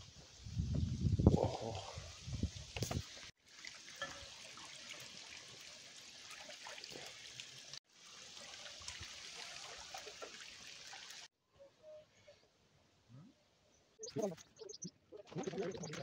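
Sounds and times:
stream trickling over rocks: 0:00.6 - 0:11.3.

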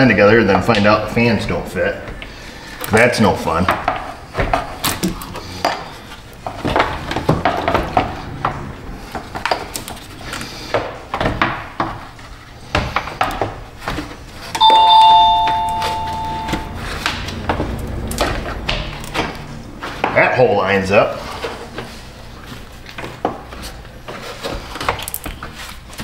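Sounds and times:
two-tone ringing chime: 0:14.6 - 0:17.1.

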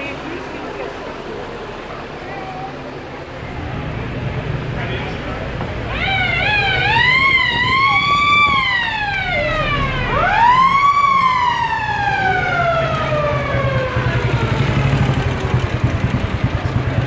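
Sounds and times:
military vehicle engines running: 0:00.0 - 0:17.0
pulsing motorcycle engine: 0:00.0 - 0:17.0
mechanical siren wailing: 0:05.8 - 0:15.3.

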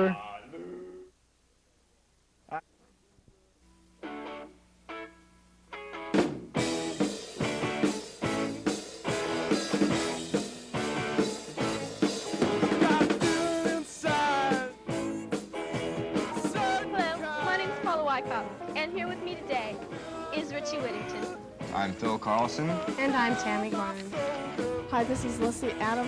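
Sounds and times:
electric guitars: 0:03.9 - 0:26.0
drum kit: 0:06.0 - 0:26.0
man singing: 0:12.5 - 0:17.9, 0:19.9 - 0:25.5.

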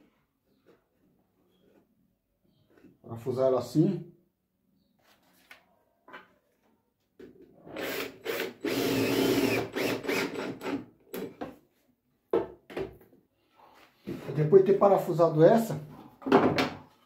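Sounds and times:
cordless drill driving screw: 0:07.8 - 0:10.8.

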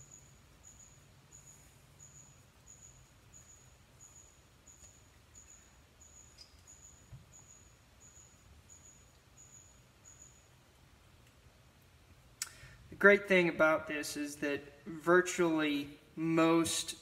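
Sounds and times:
faint high chirping: 0:00.0 - 0:10.8.

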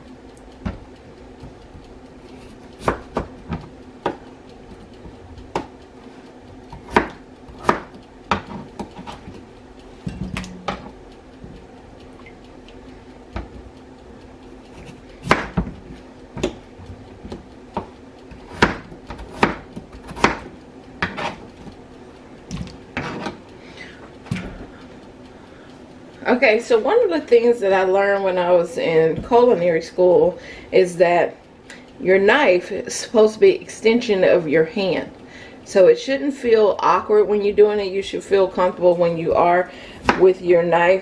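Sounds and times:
faint steady hum: 0:00.0 - 0:41.0
knife chopping on cutting board: 0:06.7 - 0:09.3, 0:14.7 - 0:15.8, 0:17.2 - 0:21.4, 0:40.0 - 0:40.2.

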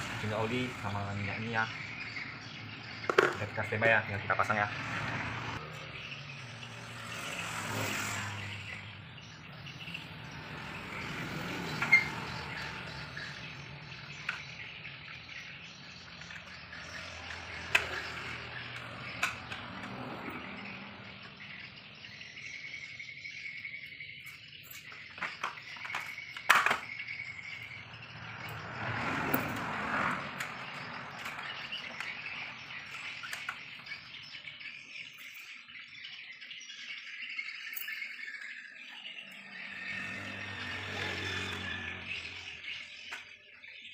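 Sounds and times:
plastic clicks and knocks: 0:03.1 - 0:03.5.

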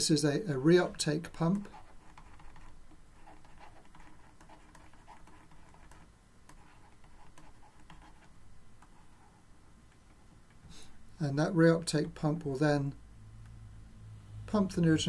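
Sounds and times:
stylus scratching on tablet: 0:00.5 - 0:09.5.

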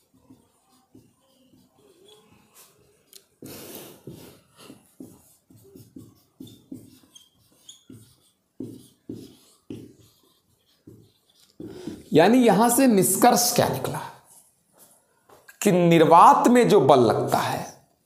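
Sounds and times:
scratchy writing strokes on board: 0:00.0 - 0:12.8
faint squeaks: 0:00.5 - 0:03.0, 0:06.4 - 0:08.3.

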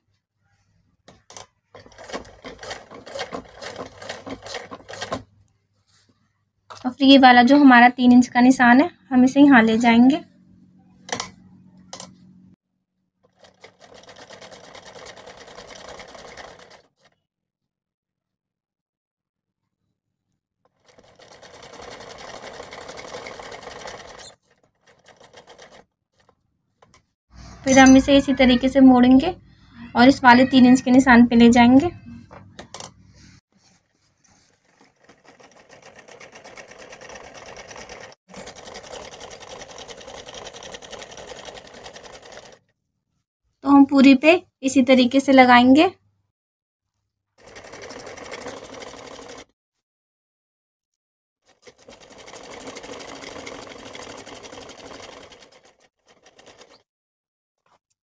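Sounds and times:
sewing machine stitching: 0:01.1 - 0:05.3, 0:13.2 - 0:17.2, 0:20.7 - 0:27.0, 0:34.4 - 0:42.7, 0:47.4 - 0:49.5, 0:51.4 - 0:56.9.

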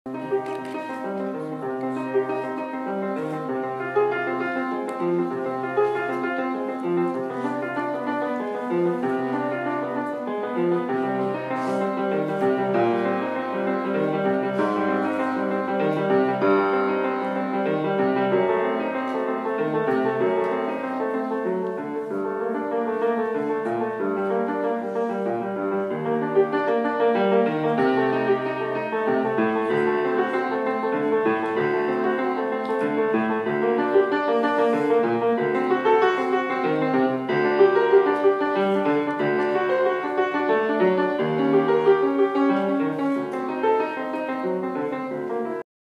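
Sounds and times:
piano music: 0:00.1 - 0:45.6.

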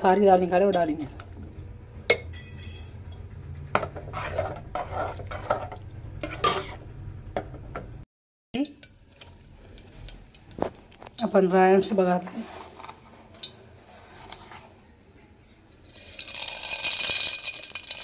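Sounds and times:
spoon scraping metal pot: 0:03.8 - 0:06.9.

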